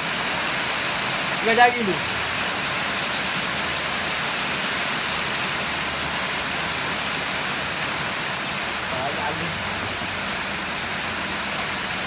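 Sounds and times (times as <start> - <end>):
rain on a metal roof: 0.0 - 12.0.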